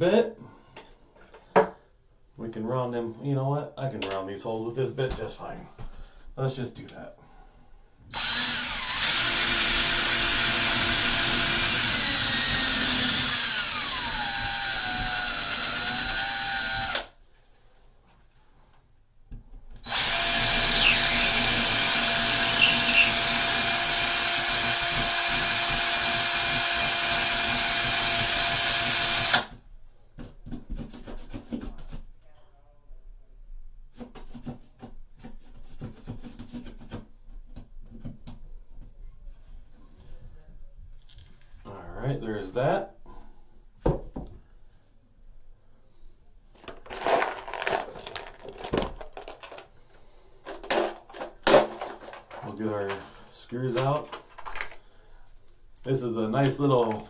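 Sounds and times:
cordless drill boring into wall: 8.1 - 17.2, 19.8 - 29.6.

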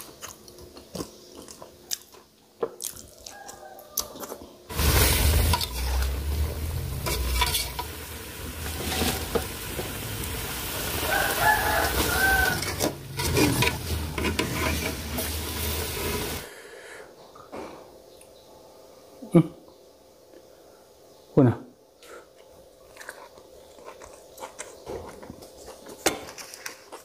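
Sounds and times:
rooster crowing: 3.2 - 4.4, 10.7 - 13.1
low rumble: 4.7 - 10.6
greens sizzling in a pan: 4.7 - 16.5.

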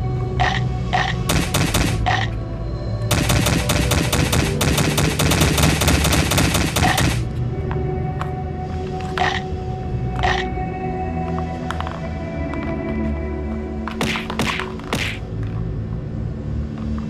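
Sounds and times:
background music: 0.0 - 17.0
rapid sharp clicks: 0.4 - 2.3, 3.1 - 7.2.

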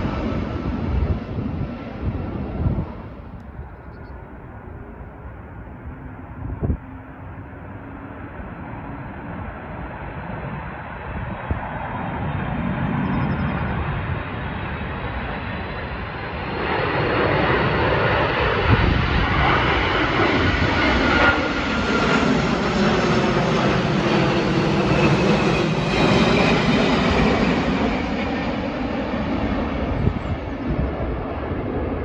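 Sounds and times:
jet airliner engine roar: 0.0 - 32.0
jet engine whining tones: 10.7 - 32.0.

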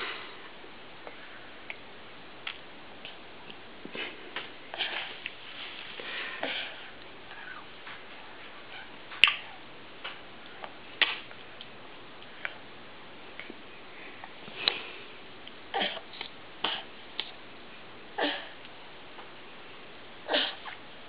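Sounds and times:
baby mouth smacks and breaths: 16.2 - 17.4.

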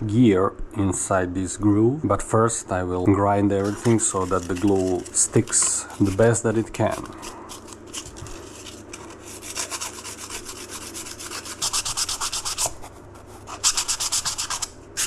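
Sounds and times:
sandpaper scrubbing metal: 3.6 - 15.0.

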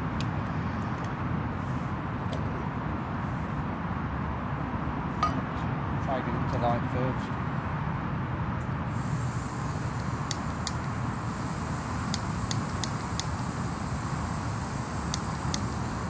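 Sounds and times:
traffic rumble: 0.0 - 16.0
gas hissing from stove: 8.9 - 16.0
igniter clicks: 10.0 - 11.0, 12.0 - 13.5, 15.0 - 15.9.

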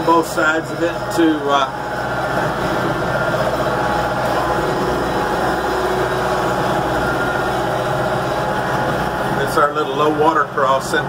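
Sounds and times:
tractor engine droning: 0.0 - 11.0.

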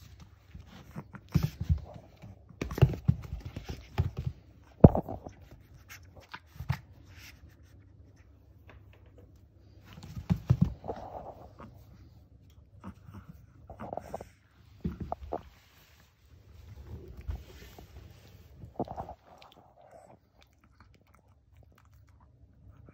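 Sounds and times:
paws thumping and scratching mat: 0.0 - 7.0, 9.8 - 11.6.

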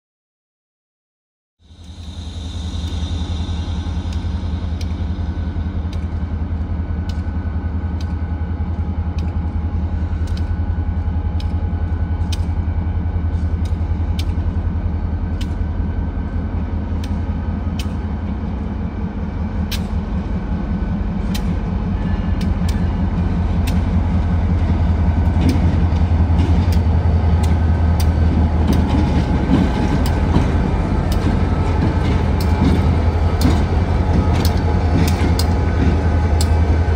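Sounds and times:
locomotive engines droning: 1.6 - 36.9
sharp ticking: 25.2 - 36.9.

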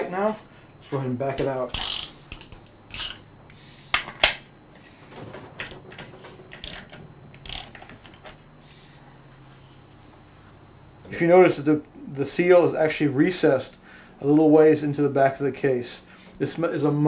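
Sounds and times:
wrench metallic clicks: 1.7 - 3.2, 6.5 - 8.4.

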